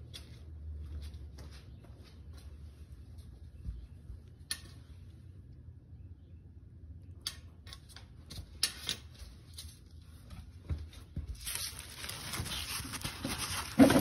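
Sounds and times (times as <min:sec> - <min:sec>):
pad rustling at microphone: 0:11.4 - 0:14.0.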